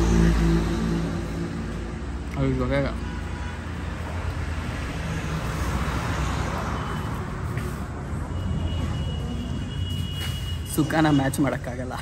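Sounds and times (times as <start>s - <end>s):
vehicle passing: 0.0s - 2.8s, 3.6s - 10.0s
road traffic rumble: 0.0s - 12.0s.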